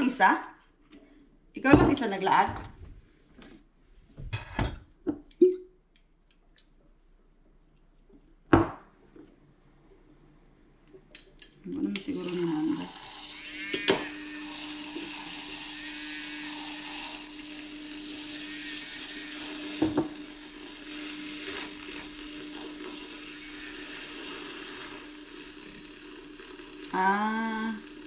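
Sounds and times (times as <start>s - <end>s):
handheld frother whirring: 11.9s - 28.0s.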